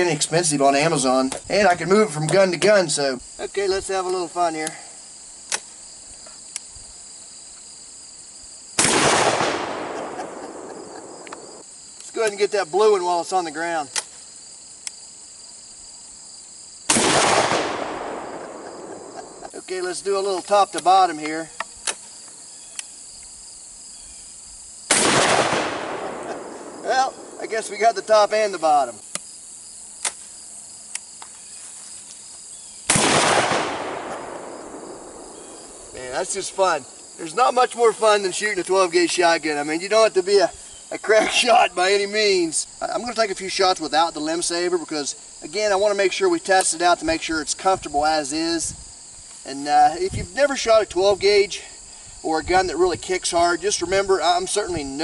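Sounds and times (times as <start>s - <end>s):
crickets chirping: 0.0s - 55.0s
shotgun loading clicks: 5.5s - 5.7s, 10.3s - 12.4s
shotgun shot: 8.8s - 11.6s, 16.9s - 19.5s, 24.9s - 27.5s, 32.9s - 35.4s.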